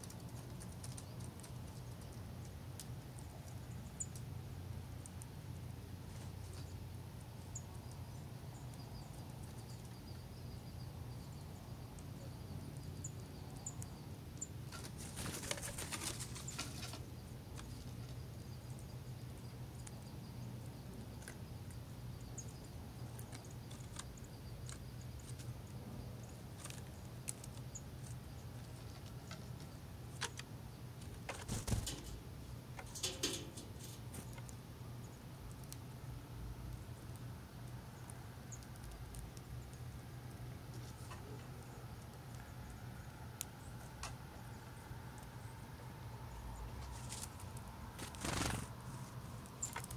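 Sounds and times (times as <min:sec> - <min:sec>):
bird wings flapping: 0:14.8 - 0:17.0, 0:31.3 - 0:32.2, 0:48.0 - 0:49.0.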